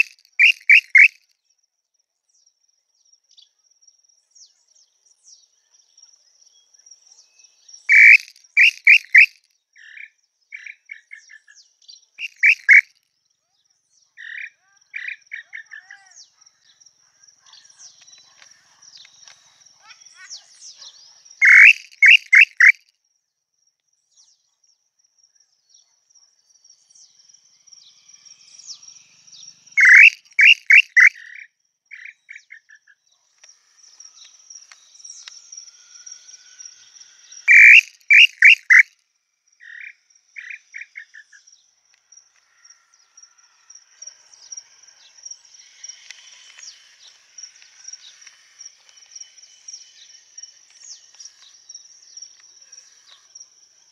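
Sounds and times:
bird whistled calls: 0:00.0 - 0:01.2, 0:07.8 - 0:09.4, 0:12.2 - 0:12.9, 0:21.4 - 0:22.8, 0:29.8 - 0:31.4, 0:37.4 - 0:38.9
insect hum: 0:00.0 - 0:53.9.

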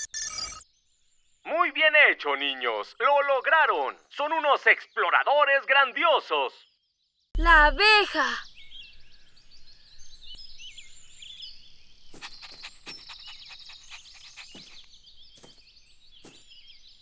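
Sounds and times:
birds chirping and whistling: 0:08.4 - 0:17.0
fast bird trill: 0:12.1 - 0:16.7.

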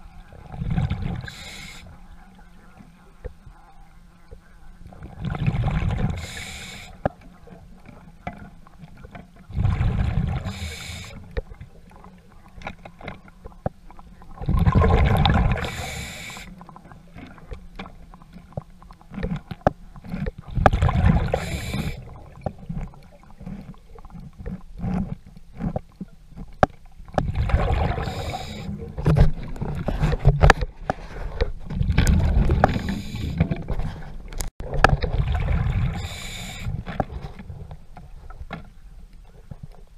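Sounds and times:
underwater breath bubbling: 0:00.0 - 0:02.1, 0:05.0 - 0:07.3, 0:09.5 - 0:12.6, 0:14.2 - 0:17.6, 0:18.2 - 0:25.8, 0:27.1 - 0:38.4.

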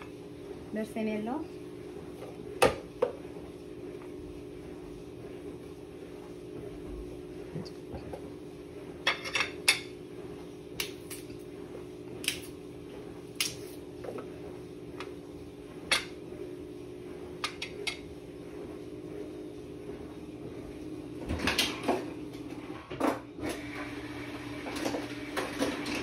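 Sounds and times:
steady low hum: 0:00.0 - 0:22.9.

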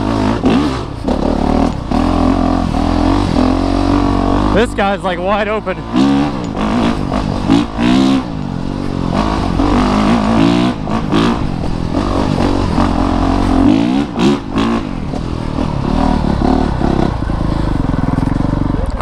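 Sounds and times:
motorcycle engine revving: 0:00.0 - 0:19.0.

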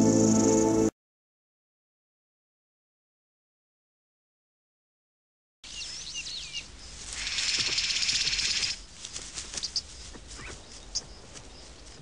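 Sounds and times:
birds whistling calls: 0:05.7 - 0:08.8.

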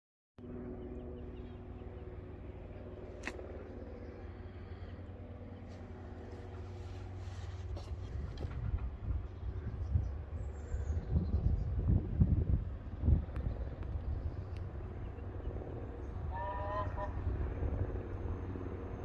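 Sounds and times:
steady low hum: 0:00.4 - 0:19.0
wind rumbling on microphone: 0:05.8 - 0:19.0.

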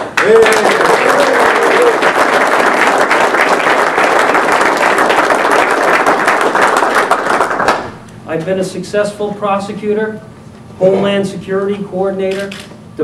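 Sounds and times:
crowd applauding: 0:00.0 - 0:08.0.

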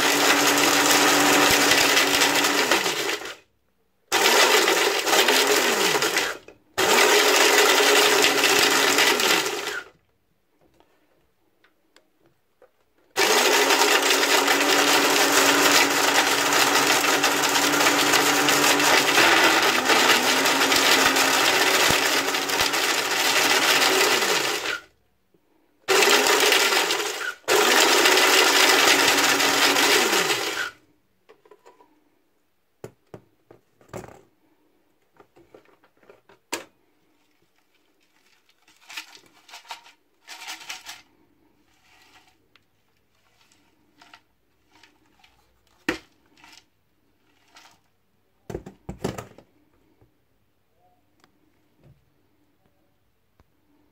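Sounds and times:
blender motor whirring: 0:00.0 - 0:03.4, 0:04.1 - 0:09.9, 0:13.2 - 0:24.9, 0:25.9 - 0:30.8
plastic rattling in blender jar: 0:13.1 - 0:24.8, 0:35.2 - 0:47.9.

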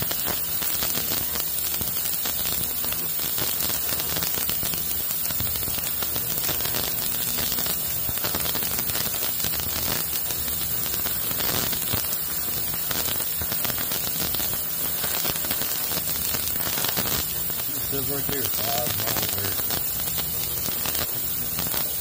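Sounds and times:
parts cleaner hissing: 0:17.7 - 0:19.7.

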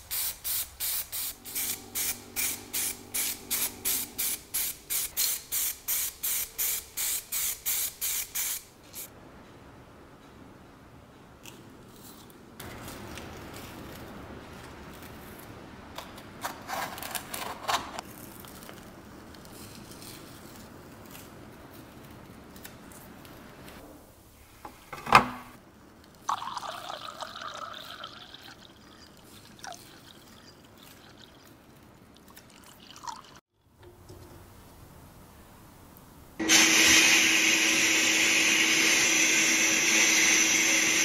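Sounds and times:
masking material crinkling: 0:11.9 - 0:15.7, 0:18.0 - 0:23.8.

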